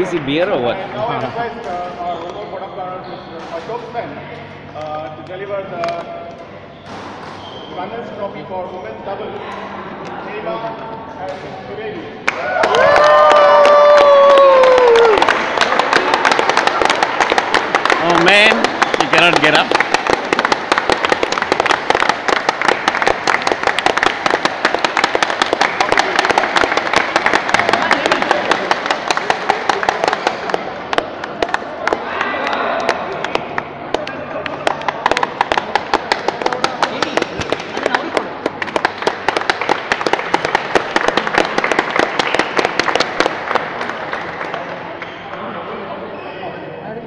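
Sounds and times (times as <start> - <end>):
group of people applauding: 12.2 - 45.1.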